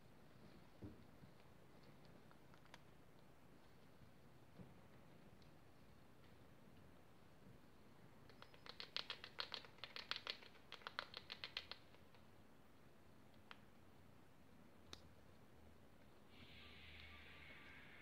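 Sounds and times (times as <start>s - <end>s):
rodents crunching dry food: 8.3s - 13.6s.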